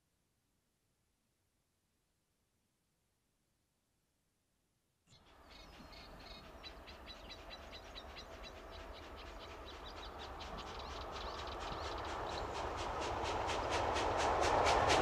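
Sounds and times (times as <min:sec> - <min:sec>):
steam locomotive exhaust beat: 0:06.0 - 0:15.0.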